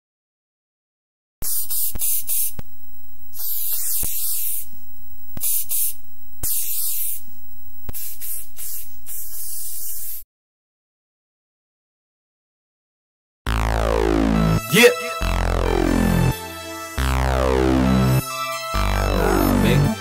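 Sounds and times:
aerosol spray can hissing: 0:01.4 - 0:02.7, 0:03.3 - 0:04.7, 0:05.4 - 0:07.3, 0:07.9 - 0:10.2
sharp clicks: 0:01.4 - 0:10.2.

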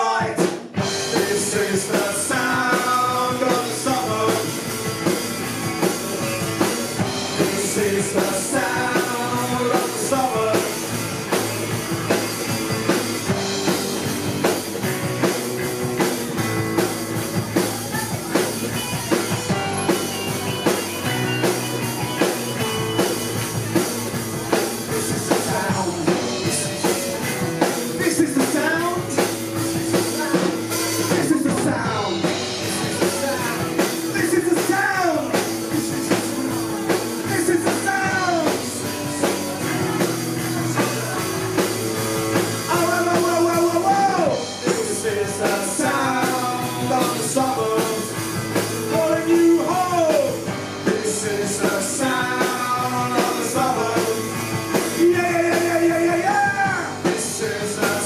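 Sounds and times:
lead voice singing: 0:00.0 - 0:58.0
rock band playing: 0:00.0 - 0:58.0.

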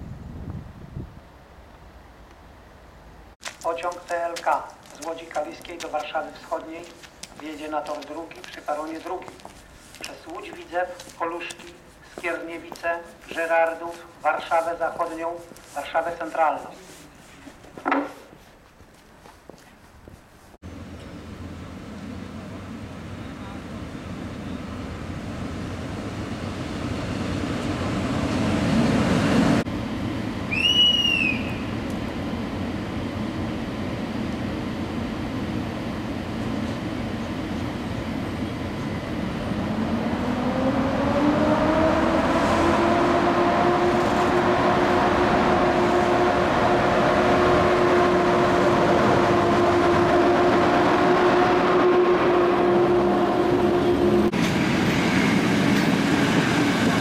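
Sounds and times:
train rumble: 0:00.0 - 0:57.0
short high whistle: 0:30.5 - 0:31.7
train motor hum rising in pitch: 0:38.6 - 0:55.2.

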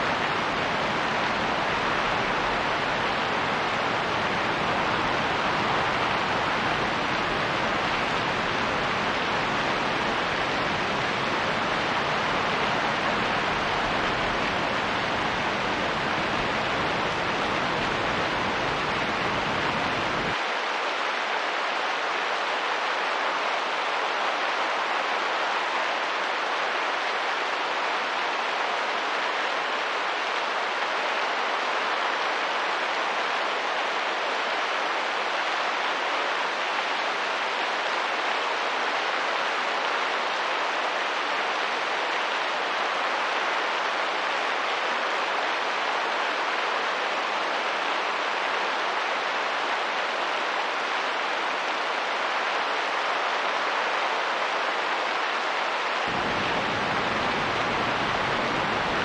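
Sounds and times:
steady rain: 0:00.0 - 0:59.0
wind: 0:00.0 - 0:59.0.

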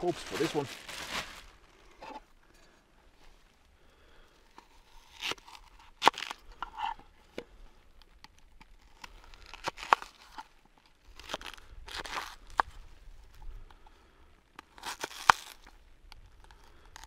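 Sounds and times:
onion skin tearing: 0:04.9 - 0:06.5, 0:08.7 - 0:10.5, 0:14.6 - 0:15.7.

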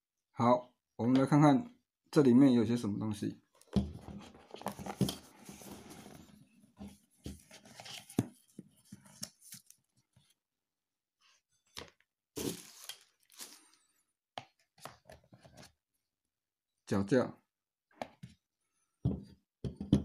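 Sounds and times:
packaging rustling: 0:12.4 - 0:13.8.

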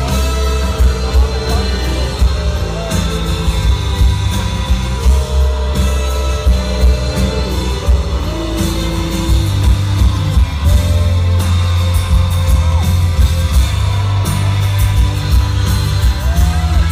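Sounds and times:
person singing: 0:00.0 - 0:12.0
rock band playing: 0:00.0 - 0:16.9.

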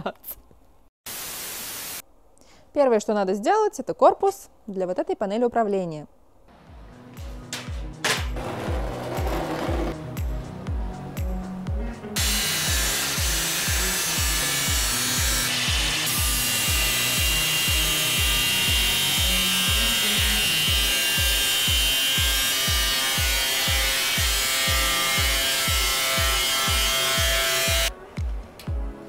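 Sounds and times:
background music with low beat: 0:06.5 - 0:16.0, 0:21.7 - 0:29.0
angle grinder cutting sheet metal: 0:12.2 - 0:27.9.

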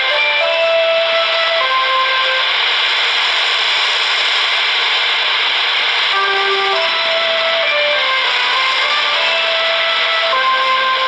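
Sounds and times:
music notes from radio: 0:00.0 - 0:11.0
radio static hiss: 0:00.0 - 0:11.0.

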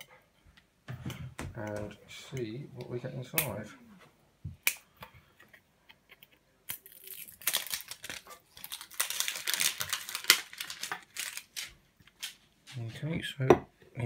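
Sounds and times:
plastic wrapping crinkling: 0:06.7 - 0:12.8.

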